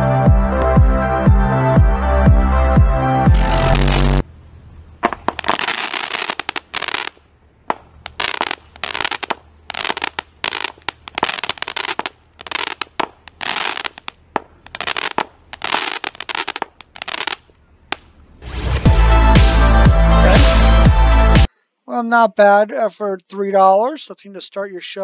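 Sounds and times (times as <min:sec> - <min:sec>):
firework shots popping: 0:03.4 - 0:04.2, 0:05.0 - 0:18.9.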